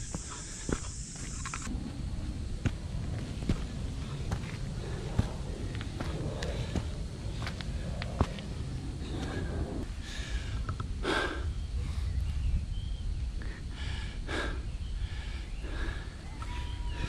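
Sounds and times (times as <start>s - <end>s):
steady low rumble: 0.0s - 17.0s
person breathing hard: 4.0s - 12.5s, 13.3s - 16.3s.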